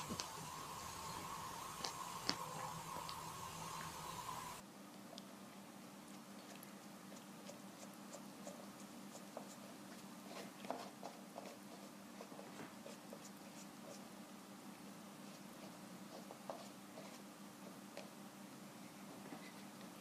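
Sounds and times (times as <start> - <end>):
cat licking paper carton: 0.0 - 4.6, 6.0 - 14.0
low steady hum: 0.0 - 20.0.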